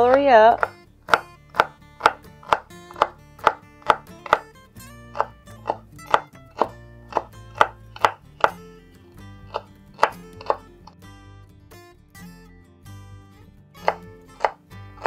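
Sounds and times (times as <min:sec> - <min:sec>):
knife chopping on wooden board: 0:00.0 - 0:04.5, 0:05.1 - 0:08.6, 0:09.4 - 0:10.7, 0:13.8 - 0:15.0
background music: 0:00.0 - 0:15.0.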